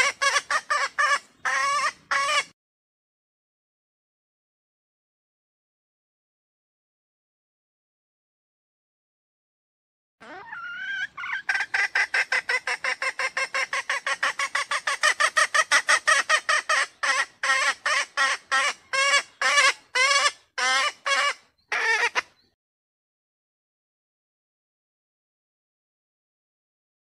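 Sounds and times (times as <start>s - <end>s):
hen calling: 0.0s - 2.5s, 10.2s - 22.6s.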